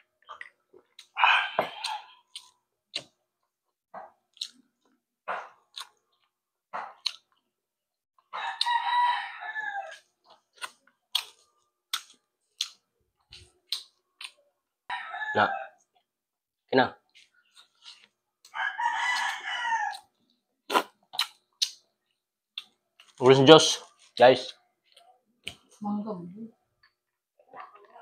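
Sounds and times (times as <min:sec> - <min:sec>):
chewing: 0:00.0 - 0:07.5, 0:09.8 - 0:14.4, 0:17.1 - 0:23.2, 0:23.8 - 0:25.8
rooster crowing: 0:08.3 - 0:10.0, 0:14.9 - 0:15.8, 0:18.5 - 0:20.1.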